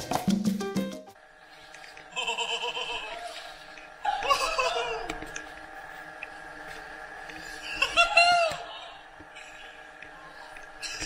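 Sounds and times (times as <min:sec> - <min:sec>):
faint steady tones: 0:01.2 - 0:11.0
people laughing and exclaiming: 0:02.1 - 0:05.5, 0:07.6 - 0:09.1.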